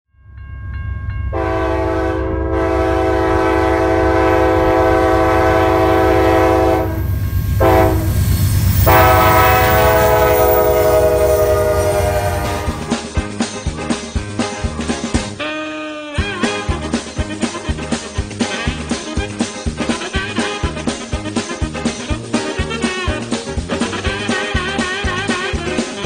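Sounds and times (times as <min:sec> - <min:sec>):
train rumbling past: 0:00.2 - 0:14.1
locomotive air horn blasts: 0:01.3 - 0:13.0.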